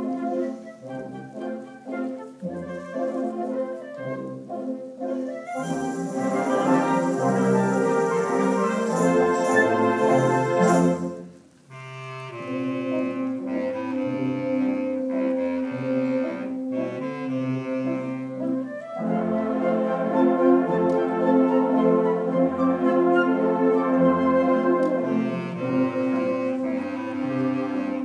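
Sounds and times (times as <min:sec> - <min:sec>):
low brass notes: 0:00.0 - 0:28.0
wind band playing: 0:00.0 - 0:28.0
clarinets: 0:05.5 - 0:11.2.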